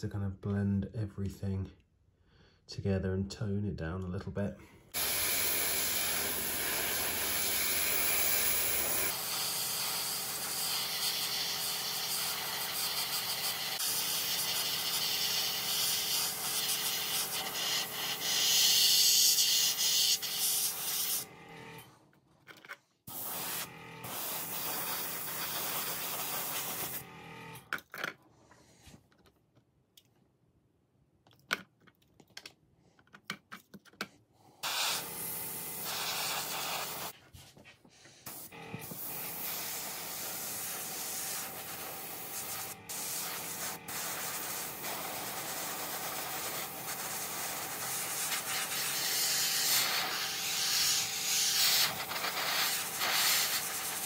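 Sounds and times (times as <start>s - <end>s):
airbrush spraying hiss: 5.0s - 21.2s, 23.1s - 27.0s, 34.6s - 37.2s, 38.2s - 54.0s.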